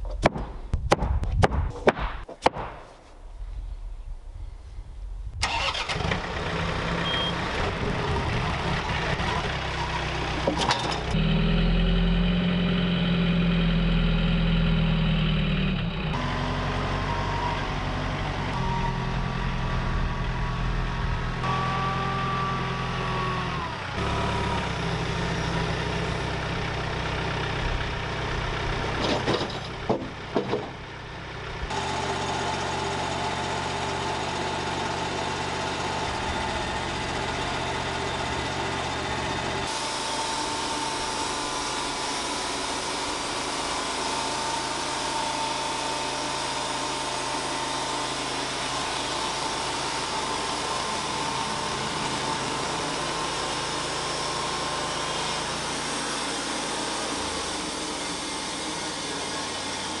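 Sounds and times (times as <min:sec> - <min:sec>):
tractor engine: 0:05.2 - 1:00.0
band sawmill whining: 0:05.4 - 1:00.0
knocks: 0:29.0 - 0:30.8.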